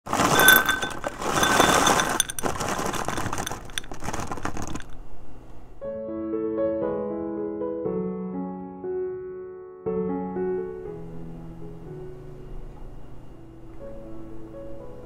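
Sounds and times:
berries clattering into a bowl: 0:00.1 - 0:05.0
piano music: 0:05.8 - 0:15.0.

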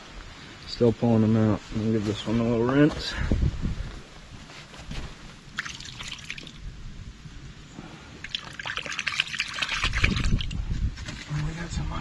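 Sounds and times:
water splashing and dribbling: 0:05.5 - 0:06.6, 0:08.2 - 0:10.6.

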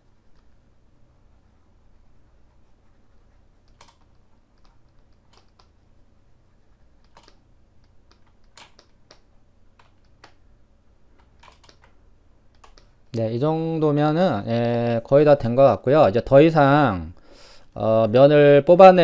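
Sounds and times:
low steady hum: 0:00.0 - 0:19.0
keyboard and mouse clicks: 0:03.6 - 0:05.8, 0:07.0 - 0:10.4, 0:11.1 - 0:13.2.

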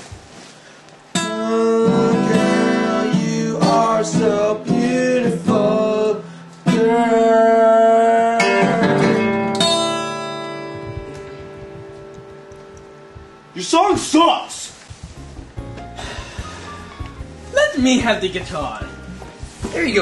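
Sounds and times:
strummed acoustic guitar: 0:01.1 - 0:14.2
man singing: 0:01.2 - 0:09.5.

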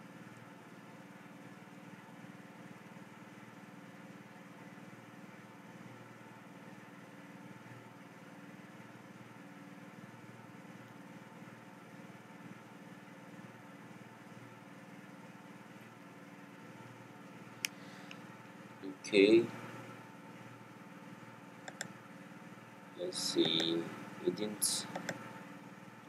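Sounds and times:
faint mechanical hum: 0:00.0 - 0:26.0.

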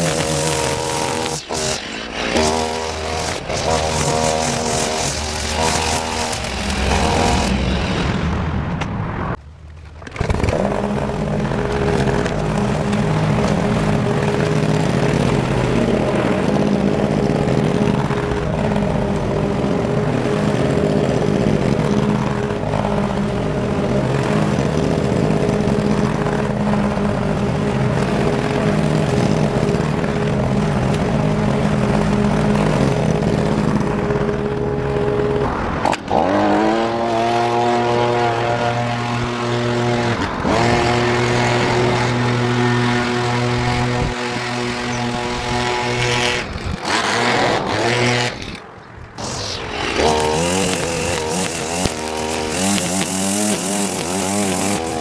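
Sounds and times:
lawn mower engine running: 0:00.0 - 0:08.8, 0:09.4 - 0:55.0.

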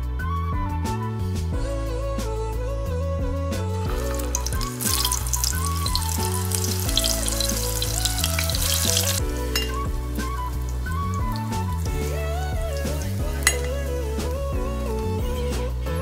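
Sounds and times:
background music: 0:00.0 - 0:16.0
sausages sizzling in a frying pan: 0:03.9 - 0:15.4.

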